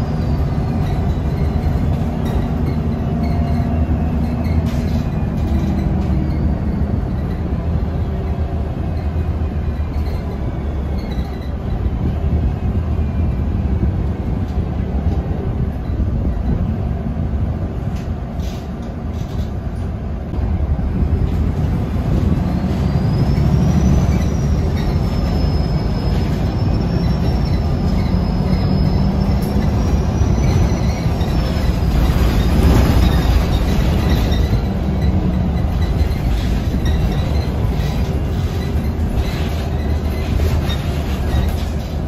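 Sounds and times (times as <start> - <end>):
bus engine and road rumble: 0.0 - 42.0.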